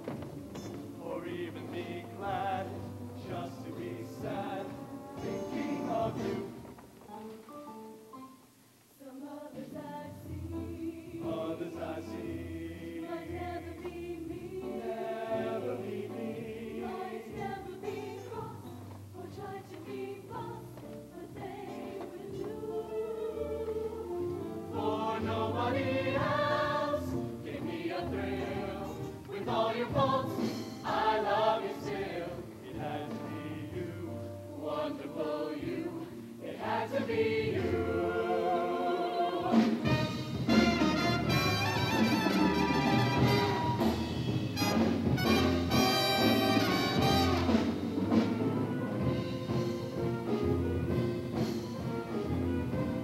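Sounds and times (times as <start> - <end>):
choir singing: 0.0 - 6.7, 9.0 - 20.6, 21.2 - 41.2.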